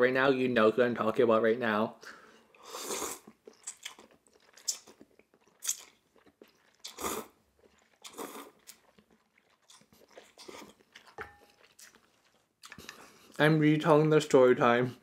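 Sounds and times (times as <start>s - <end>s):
person slurping noodles: 2.6s - 11.2s
wet chewing: 3.1s - 13.4s.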